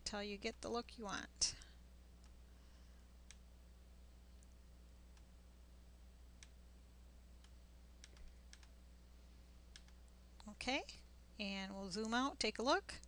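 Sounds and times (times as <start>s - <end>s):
low electrical hum: 0.0s - 13.0s
computer mouse clicks: 7.4s - 8.8s, 9.7s - 10.0s.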